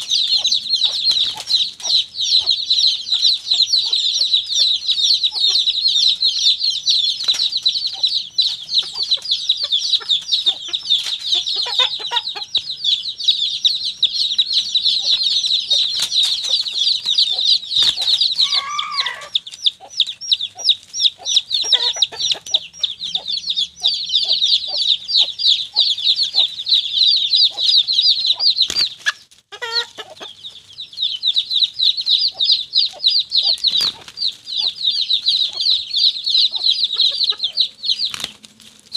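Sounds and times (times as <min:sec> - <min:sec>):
hen clucking: 0:00.0 - 0:38.6
chicks peeping: 0:00.0 - 0:38.9
loud squawk: 0:17.3 - 0:19.4.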